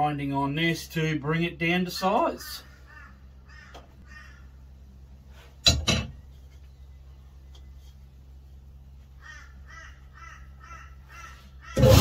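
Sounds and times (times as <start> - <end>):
low steady hum: 0.0 - 11.8
crow cawing: 2.6 - 4.6, 9.2 - 11.9.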